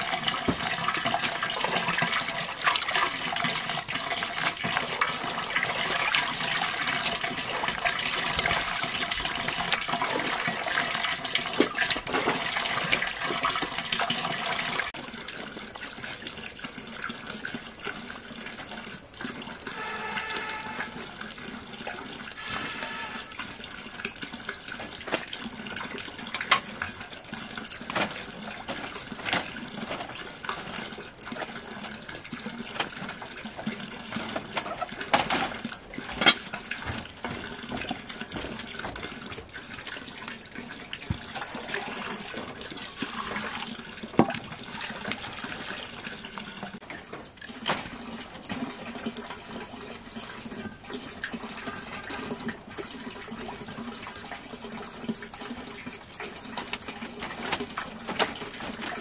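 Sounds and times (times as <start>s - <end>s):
water running and splashing: 0.0s - 59.0s
clinks and knocks: 34.1s - 39.2s.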